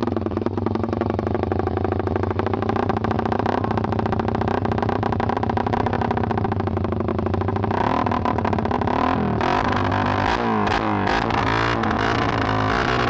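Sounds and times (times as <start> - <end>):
motorcycle engine idling and revving: 0.0 - 13.0.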